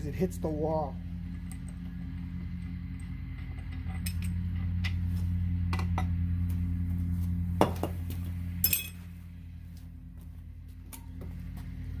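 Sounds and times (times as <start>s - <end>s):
steady low hum: 0.0s - 12.0s
wrench clinking on metal: 8.6s - 9.0s.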